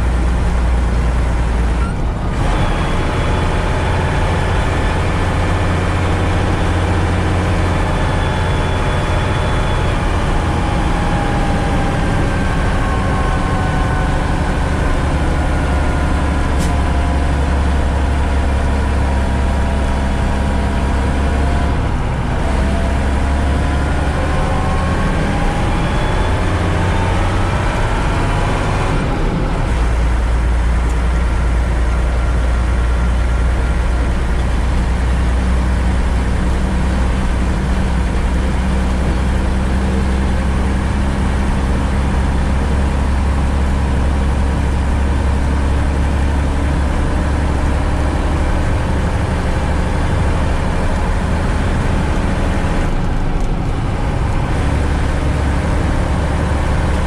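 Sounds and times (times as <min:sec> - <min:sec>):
diesel truck engine droning: 0:00.0 - 0:57.0.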